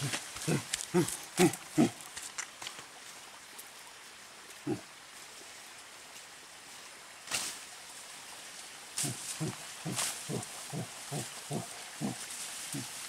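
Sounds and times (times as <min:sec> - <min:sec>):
short low grunt: 0:00.0 - 0:02.0, 0:09.0 - 0:12.2
faint forest hiss: 0:00.0 - 0:13.0
rustling foliage: 0:00.0 - 0:13.0.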